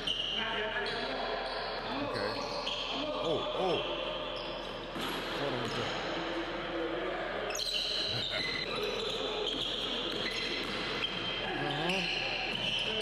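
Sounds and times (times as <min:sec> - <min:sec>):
sneakers squeaking on hardwood: 0:07.5 - 0:13.0
players' voices: 0:11.3 - 0:13.0.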